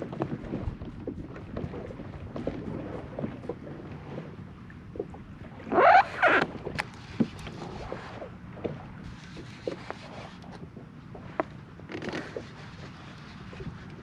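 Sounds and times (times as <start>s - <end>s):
water lapping against hull: 0.0s - 14.0s.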